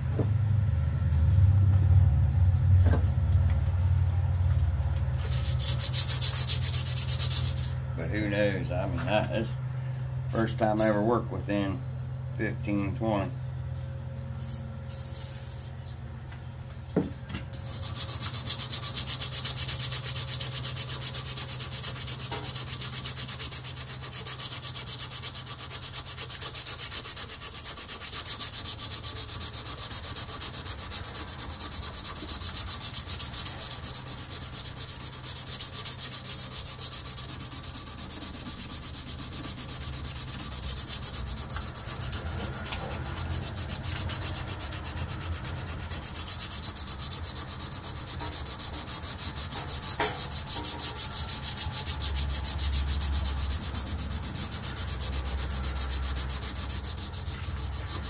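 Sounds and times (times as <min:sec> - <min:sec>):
sandpaper rubbing on steel blade: 0:04.8 - 0:07.8, 0:10.4 - 0:11.1, 0:14.4 - 0:15.8, 0:17.5 - 0:58.0.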